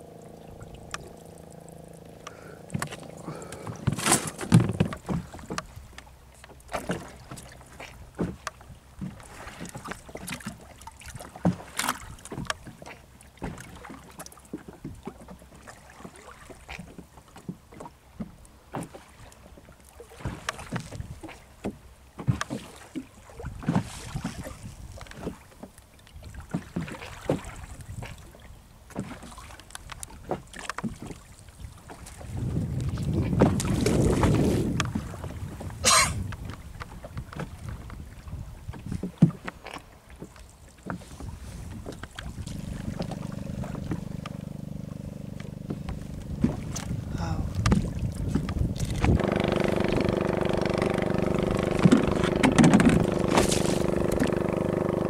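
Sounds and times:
knocks against boat hull: 3.6s - 5.7s, 51.6s - 54.3s.

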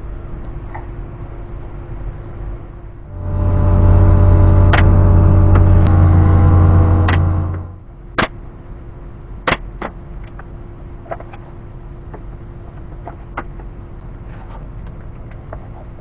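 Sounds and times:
faint steady hum: 3.1s - 7.8s.

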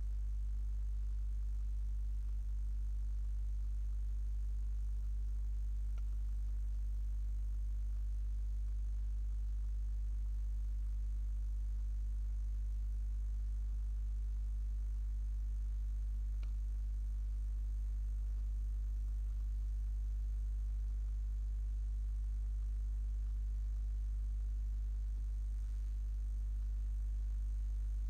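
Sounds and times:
low electrical hum: 0.0s - 28.0s
faint click: 5.9s - 6.3s, 16.3s - 16.7s.

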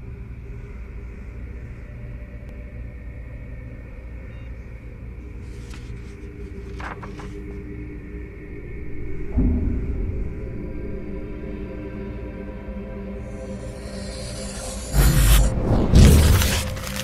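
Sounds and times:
low cinematic drone: 6.7s - 17.0s
soft hissing accents: 13.3s - 15.6s.

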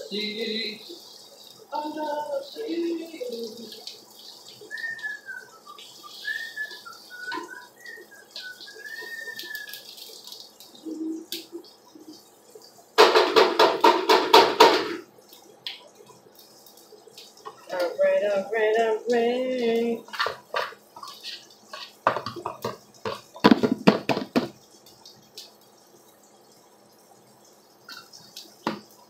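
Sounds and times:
oil frying in a pan: 0.0s - 29.0s
person whistling a tune: 4.7s - 9.8s.

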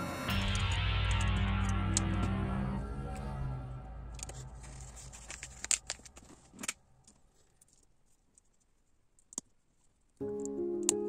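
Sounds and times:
background music: 0.0s - 5.4s, 10.2s - 11.0s.

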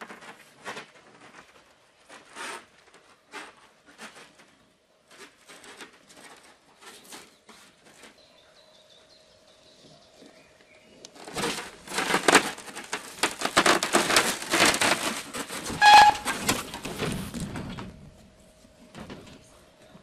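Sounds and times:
plastic sheeting crackling: 11.2s - 18.0s
short squeak: 15.7s - 16.5s.

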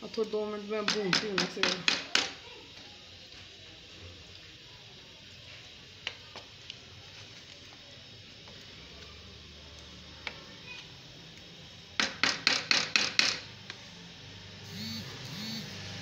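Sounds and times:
curry frying: 0.0s - 14.6s
wooden spoon knocking metal pot: 0.8s - 2.4s, 12.0s - 13.5s.

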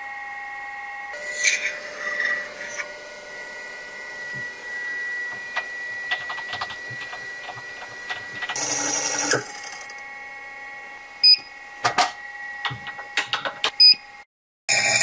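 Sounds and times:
milling machine spindle whining: 0.0s - 13.9s
drill bit cutting metal: 1.2s - 10.1s, 14.7s - 15.0s.

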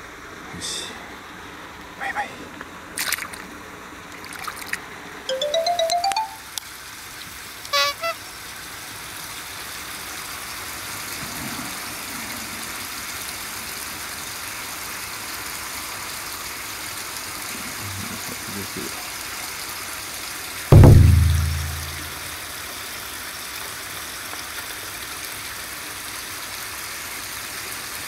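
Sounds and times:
fish splashing into water: 3.0s - 3.5s, 4.1s - 4.8s
electronic jingle beeping notes: 5.3s - 6.5s, 20.7s - 22.1s
short chime: 5.3s - 6.5s, 20.7s - 22.2s.

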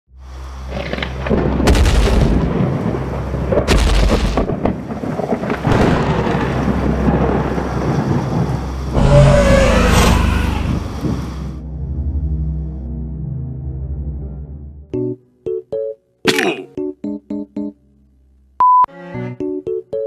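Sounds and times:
rain: 0.2s - 11.6s
thunder rumbling: 0.7s - 11.5s
loud thunder cracks: 1.2s - 11.4s.

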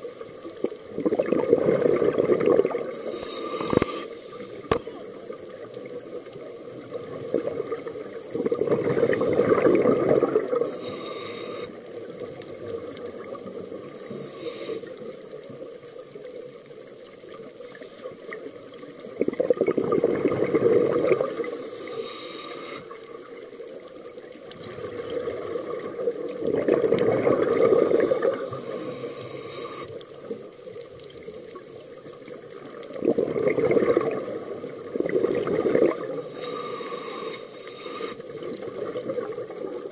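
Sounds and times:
exhaled bubbles rushing: 0.6s - 3.0s, 6.7s - 10.7s, 19.0s - 21.6s, 24.4s - 29.9s, 32.5s - 36.3s
regulator inhalation hiss: 2.9s - 5.0s, 10.6s - 12.1s, 13.7s - 15.2s, 21.2s - 23.1s, 28.2s - 30.0s, 36.2s - 38.5s.

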